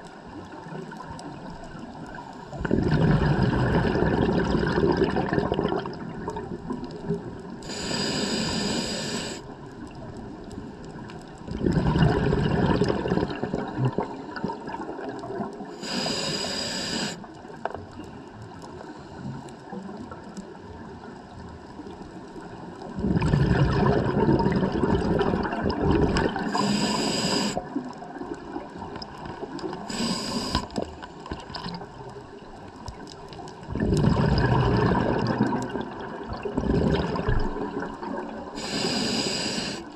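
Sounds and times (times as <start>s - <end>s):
bubbling exhales: 2.5s - 9.4s, 11.5s - 17.2s, 22.9s - 27.8s, 29.6s - 31.9s, 33.7s - 39.9s
regulator hissing inhales: 7.6s - 9.5s, 15.8s - 17.3s, 26.5s - 27.7s, 29.8s - 30.8s, 38.6s - 39.9s.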